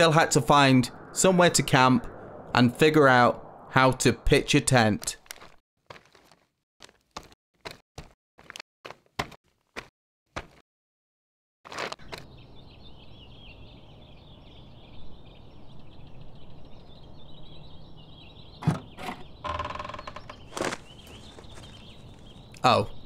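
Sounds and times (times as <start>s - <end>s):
footsteps on dirt path: 5.0s - 10.6s, 11.7s - 12.4s, 20.4s - 22.6s.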